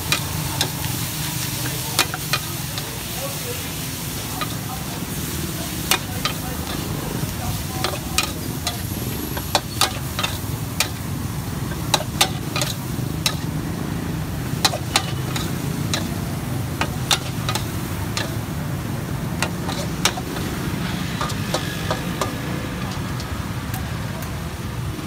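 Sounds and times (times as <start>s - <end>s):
greens sizzling in a wok: 0.0s - 25.0s
metal spatula scraping a wok: 14.6s - 16.2s, 19.4s - 22.4s.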